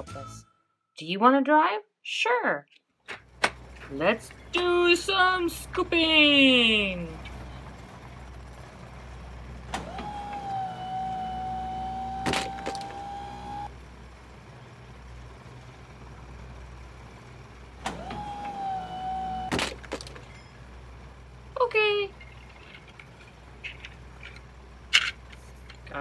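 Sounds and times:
machine-like whine: 0:09.7 - 0:20.6
plastic bricks dropping into toy truck: 0:22.6 - 0:25.9.

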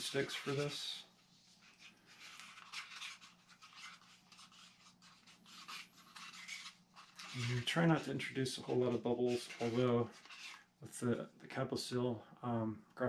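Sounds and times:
stick scraping in a cup: 0:05.4 - 0:10.7.

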